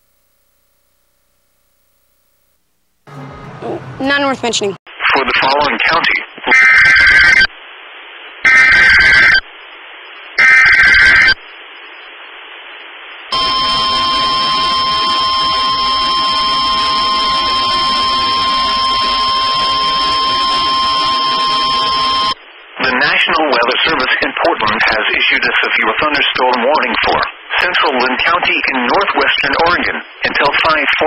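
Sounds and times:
buzzing digital data bursts: 13.3s - 22.4s
steady alarm tone: 13.3s - 22.4s.

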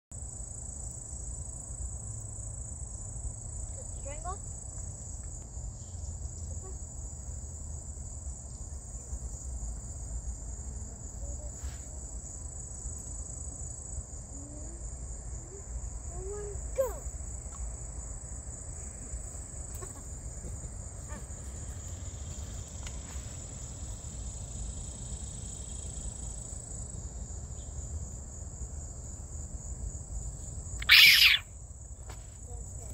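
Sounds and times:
insects calling: 0.3s - 32.9s.

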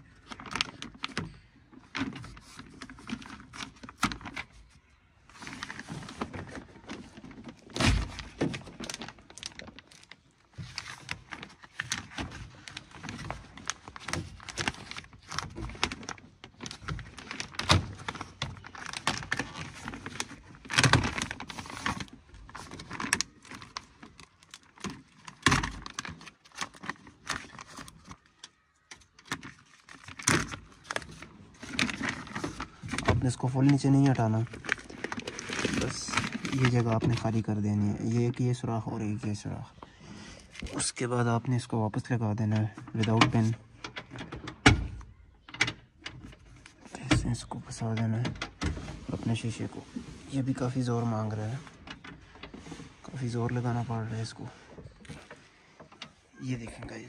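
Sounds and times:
plastic sheet crinkling and peeling: 0.0s - 39.6s, 40.4s - 57.0s
handling rustling and clicks: 5.4s - 37.5s, 42.5s - 57.0s.

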